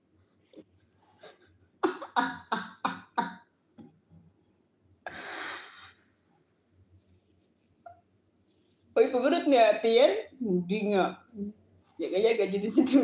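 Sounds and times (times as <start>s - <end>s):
woman laughing: 1.8s - 3.4s.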